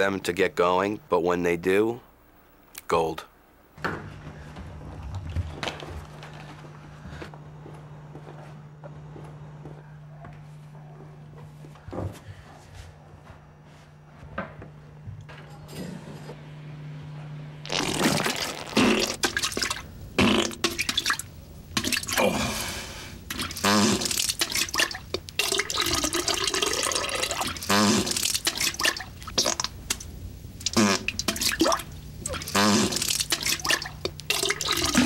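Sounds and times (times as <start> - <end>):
person farting: 17.6 - 21.2, 23.3 - 29.7, 30.6 - 35.0.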